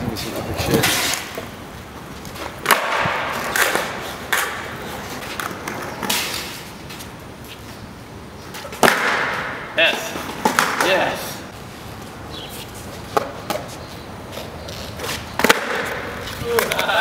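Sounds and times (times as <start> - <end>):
skateboard wheels rolling: 0.0 - 17.0
skateboard deck clacking: 2.5 - 6.5, 14.9 - 17.0.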